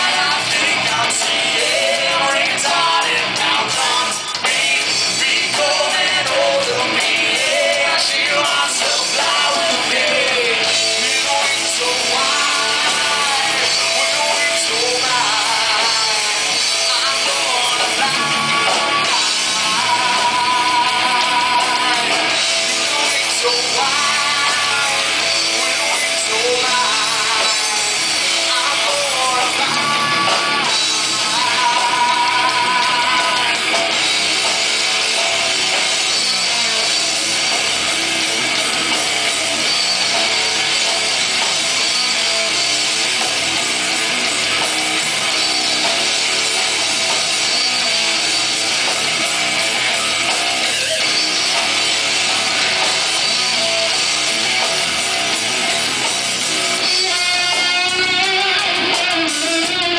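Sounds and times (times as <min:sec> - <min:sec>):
person singing: 0:00.0 - 0:33.9
live rock band playing: 0:00.0 - 0:59.9.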